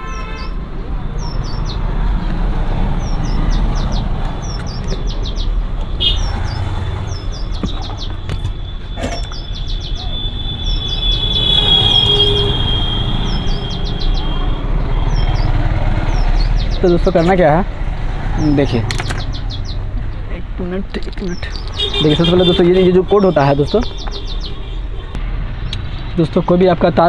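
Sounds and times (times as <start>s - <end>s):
long high-pitched squeal: 10.0s - 14.4s.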